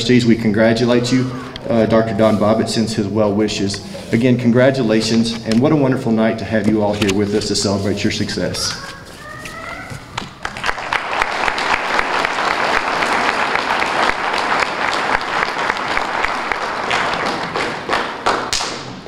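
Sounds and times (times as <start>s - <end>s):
audience applauding: 10.3s - 18.8s.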